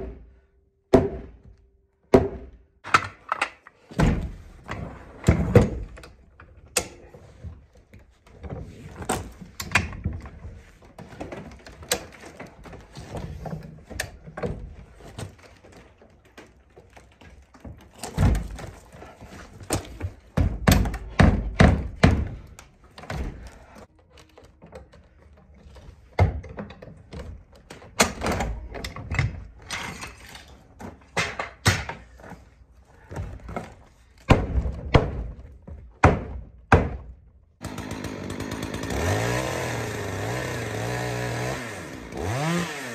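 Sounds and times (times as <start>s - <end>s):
sledgehammer heavy thuds: 0.9s - 1.5s, 34.3s - 37.2s
chainsaw running: 37.6s - 42.9s.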